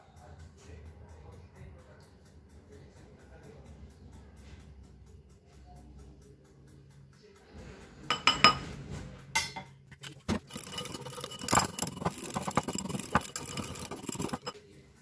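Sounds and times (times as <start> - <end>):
whisk clinking against glass bowl: 8.1 - 8.6, 9.4 - 14.6.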